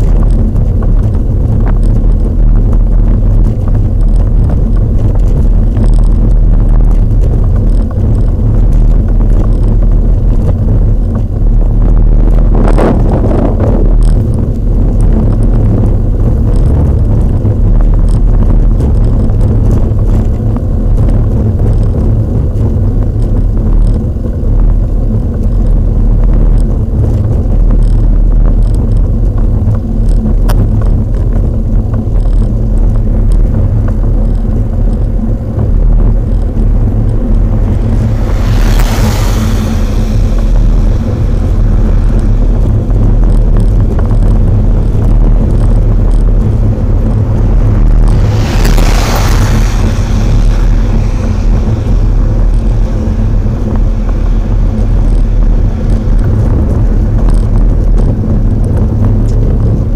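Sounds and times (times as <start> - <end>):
wind rumble on microphone: 0.0 - 59.9
car passing by: 36.2 - 44.7, 45.8 - 58.1.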